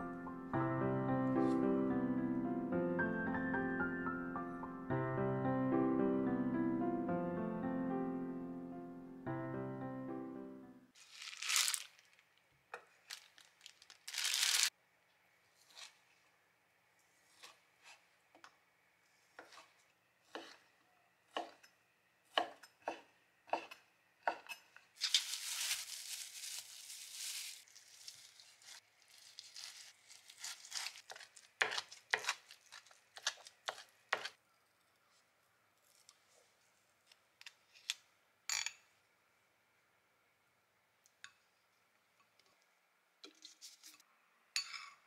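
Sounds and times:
knife chopping on cutting board: 19.4s - 19.7s, 20.3s - 20.6s, 21.3s - 21.7s, 22.3s - 24.7s, 30.8s - 32.4s, 33.2s - 34.4s.

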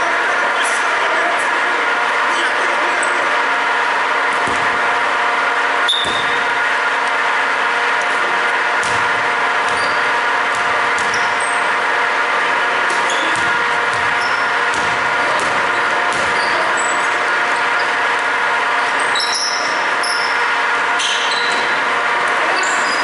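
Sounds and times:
loud steady hum: 0.0s - 23.0s
basketball bouncing: 4.3s - 4.9s, 5.9s - 6.5s, 8.8s - 11.7s, 12.7s - 16.8s
sneaker squeaks: 5.8s - 6.6s, 8.8s - 11.8s, 12.5s - 18.0s, 18.9s - 21.8s, 22.4s - 23.0s.

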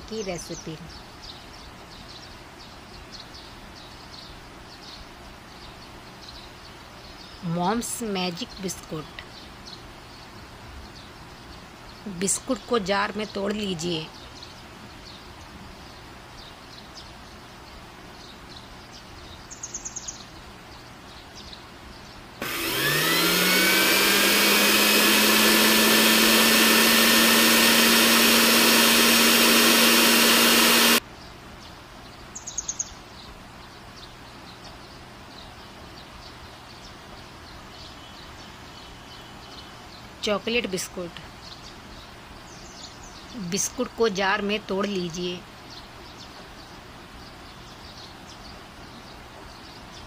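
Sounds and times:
mixer grinder motor whining: 22.4s - 31.0s.

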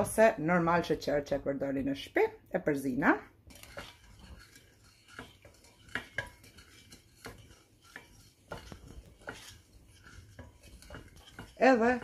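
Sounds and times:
spoon stirring in saucepan: 2.7s - 12.0s
spoon knocking against pan: 5.1s - 12.0s.

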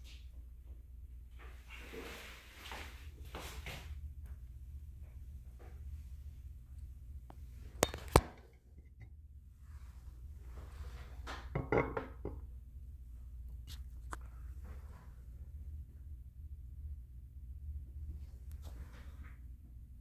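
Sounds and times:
steady low hum: 0.0s - 20.0s
ceramic ring: 7.8s - 9.2s.

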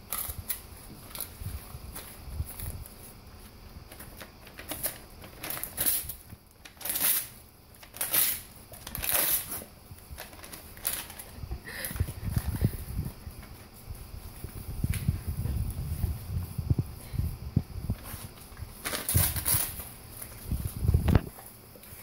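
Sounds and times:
paper crinkling: 0.0s - 13.8s, 17.9s - 22.0s
dog ripping paper: 3.9s - 11.3s, 18.7s - 20.4s.

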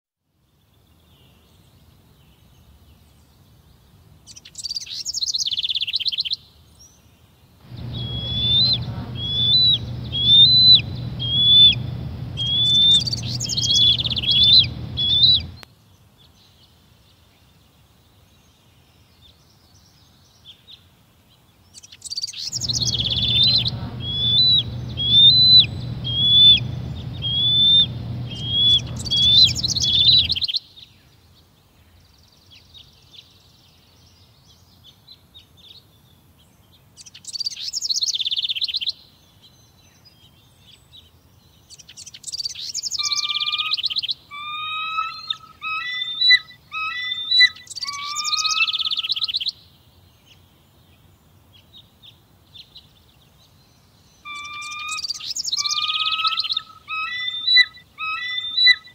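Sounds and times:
low background rush: 7.7s - 15.6s, 22.5s - 30.4s
eagle whistled chirps: 7.8s - 15.6s, 22.5s - 30.4s, 44.4s - 49.1s, 54.3s - 58.9s.

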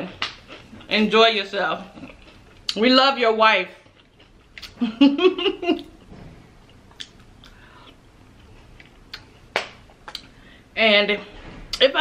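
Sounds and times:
soft chewing: 1.8s - 2.8s, 3.8s - 4.8s, 5.8s - 10.4s.

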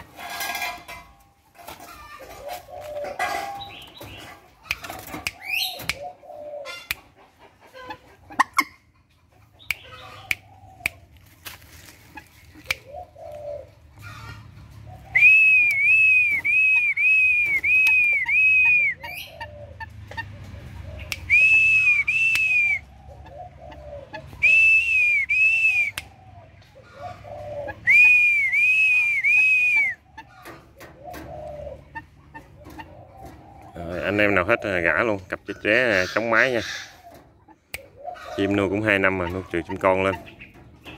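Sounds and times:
bird coo-like calls: 0.0s - 8.9s, 9.5s - 40.9s
high whistled notes: 21.2s - 22.8s, 24.4s - 26.0s, 27.9s - 30.0s.

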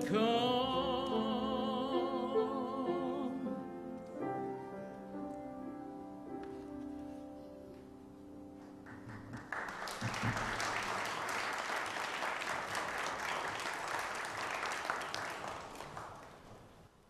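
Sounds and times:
congregation applauding: 8.6s - 16.9s.

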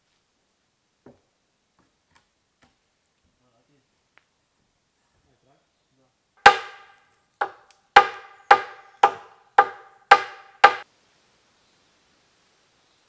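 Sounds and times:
hatchet striking log: 6.4s - 10.8s.

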